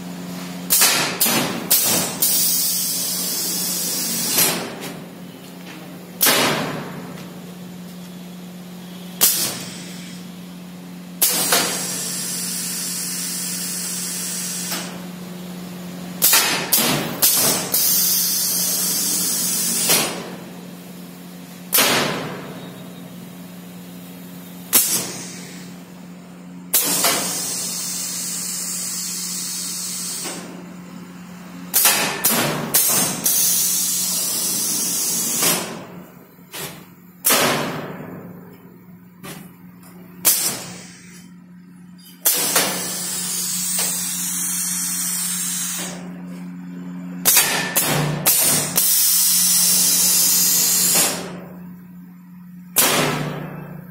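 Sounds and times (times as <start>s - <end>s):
compressed air hissing: 1.7s - 4.7s, 11.2s - 14.8s, 24.7s - 25.7s, 26.7s - 30.4s, 32.8s - 35.8s, 42.2s - 46.0s
steady low hum: 14.4s - 53.9s.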